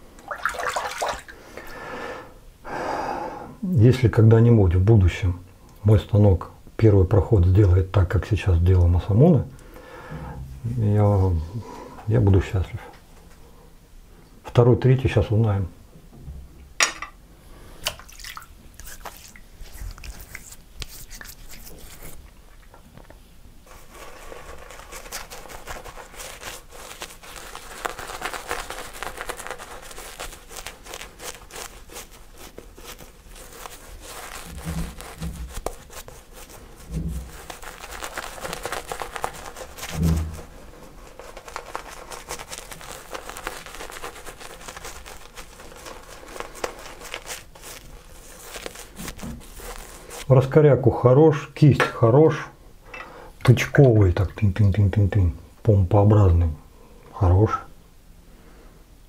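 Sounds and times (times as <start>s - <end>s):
shaving brush wet crackling: 0.2s - 1.3s, 17.8s - 22.7s, 23.7s - 50.6s.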